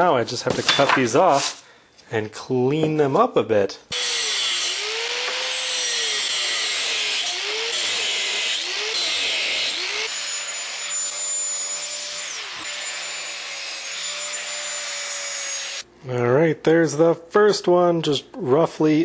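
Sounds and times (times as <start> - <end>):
angle grinder cutting metal: 3.9 - 15.8.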